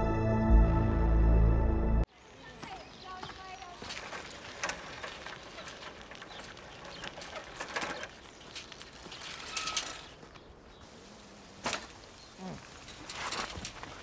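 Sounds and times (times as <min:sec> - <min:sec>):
tyres crunching on gravel: 0:02.2 - 0:14.0
bicycle clicks and rattles: 0:03.8 - 0:10.5, 0:11.6 - 0:14.0.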